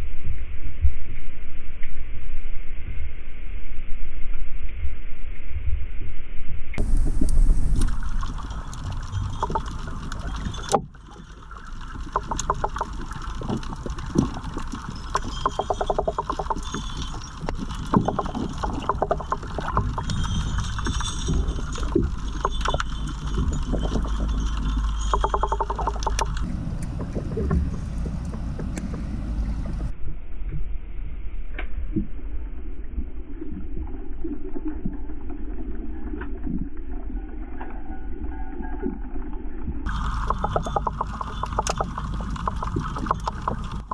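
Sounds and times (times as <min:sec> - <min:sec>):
underwater low rumble: 0:00.0 - 0:43.9
underwater sharp clicks and crackles: 0:06.8 - 0:29.9, 0:33.6 - 0:43.9.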